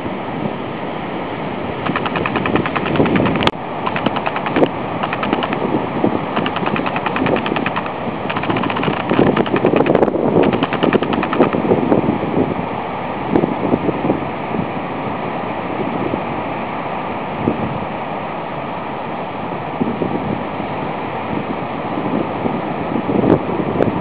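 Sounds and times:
rapid chirring clicks: 1.8s - 5.7s, 6.4s - 11.7s
wind buffeting microphone: 1.8s - 12.7s.

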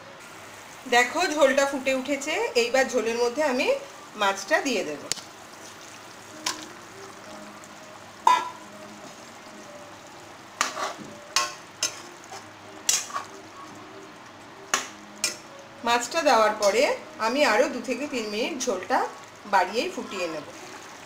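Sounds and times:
broth bubbling in a pan: 3.5s - 15.5s, 18.6s - 21.0s
metal spatula scraping a pan: 10.6s - 13.3s.

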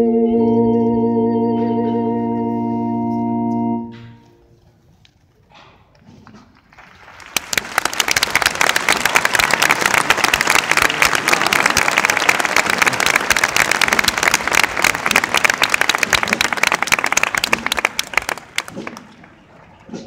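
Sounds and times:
large crowd applauding: 6.2s - 20.0s.

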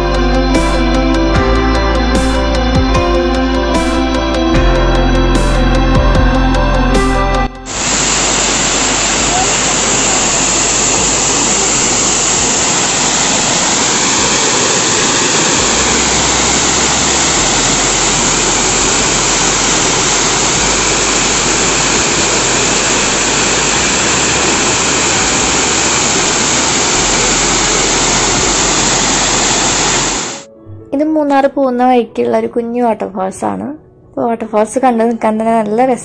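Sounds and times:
waterfall rushing: 7.7s - 30.5s.

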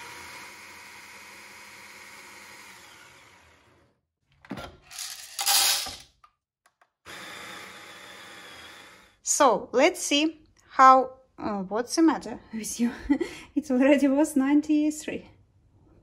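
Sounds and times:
coffee grinder whirring: 0.0s - 4.0s, 7.1s - 9.2s.

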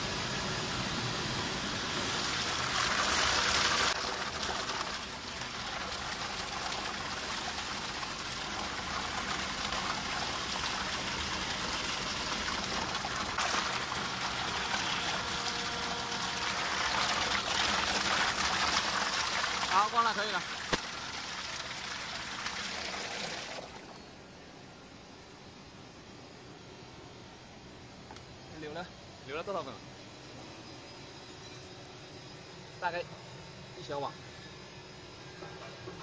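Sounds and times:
water churning in tank: 1.8s - 23.9s.

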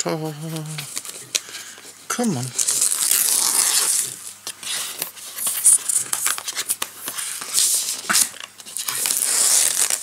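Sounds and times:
shrink wrap crinkling and tearing: 2.4s - 10.0s.

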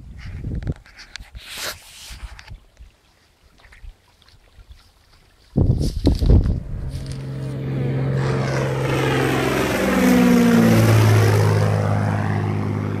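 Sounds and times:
propeller plane flying past: 6.2s - 13.0s.

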